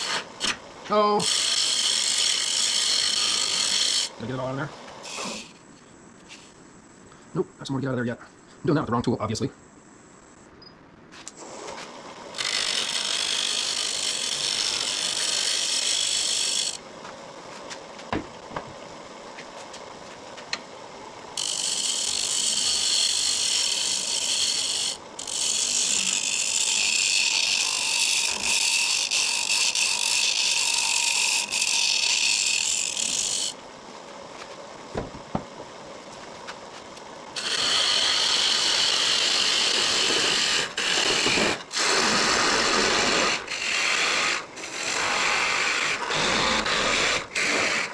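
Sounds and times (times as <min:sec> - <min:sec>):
lathe tool scraping wood: 0:00.0 - 0:00.6, 0:01.2 - 0:05.7, 0:11.3 - 0:16.8, 0:21.4 - 0:33.6, 0:37.4 - 0:47.9.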